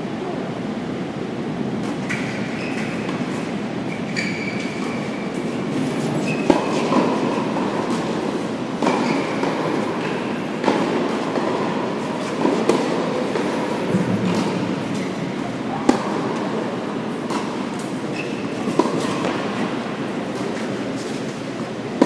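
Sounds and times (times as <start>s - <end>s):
steady hall hum: 0.0s - 22.0s
shoe squeaks: 2.0s - 7.0s, 8.9s - 9.4s, 14.9s - 15.8s, 17.8s - 19.2s
racket striking tennis ball: 4.6s - 22.0s.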